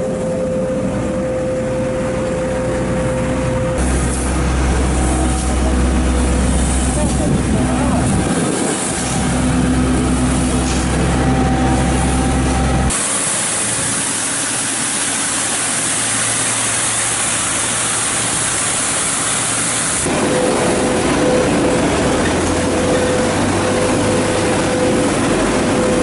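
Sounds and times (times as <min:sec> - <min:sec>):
tractor engine running: 0:00.0 - 0:26.0
truck engine humming: 0:00.0 - 0:26.0
sweeper brush scraping asphalt: 0:03.8 - 0:26.0.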